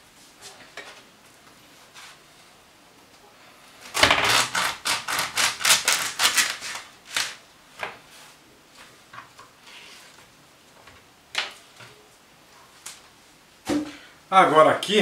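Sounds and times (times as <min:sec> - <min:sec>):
corn husk rustling: 0:03.8 - 0:07.4
knife sawing through corn husk: 0:03.9 - 0:07.3.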